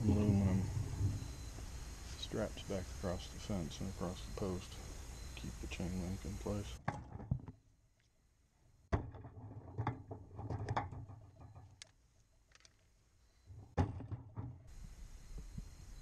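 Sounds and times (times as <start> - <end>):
small clicks and rattles: 9.3 - 12.9.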